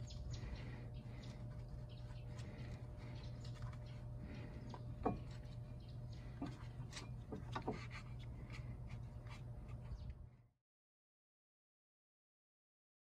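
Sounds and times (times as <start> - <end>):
steady low hum: 0.0 - 10.6
small brush scratching metal: 6.4 - 10.2.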